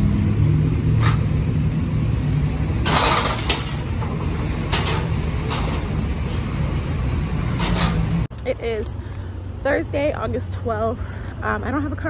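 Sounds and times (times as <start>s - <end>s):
sharp metal clanks: 2.8s - 5.9s.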